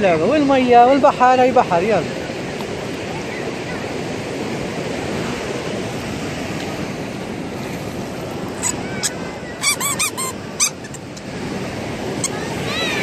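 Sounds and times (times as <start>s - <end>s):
sea waves on beach: 0.0s - 13.0s
short high squeaks and clicks: 8.6s - 11.3s.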